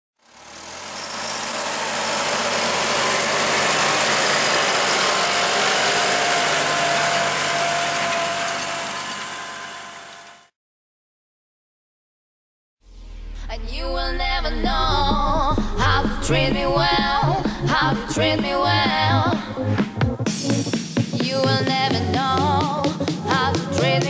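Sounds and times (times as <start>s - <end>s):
steady whine: 0.2s - 10.5s, 13.6s - 19.6s
tractor diesel engine under load: 0.2s - 10.5s, 14.1s - 19.7s.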